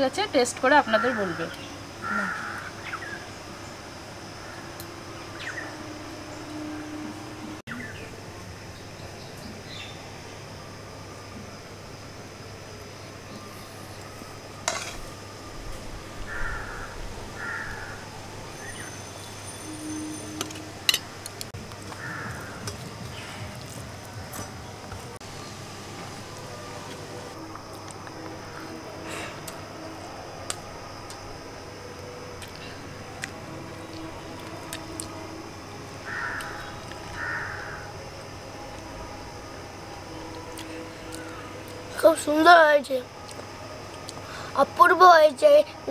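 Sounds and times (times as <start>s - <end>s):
crow cawing: 0.9s - 3.0s, 16.3s - 18.0s, 22.0s - 22.6s, 36.0s - 37.9s.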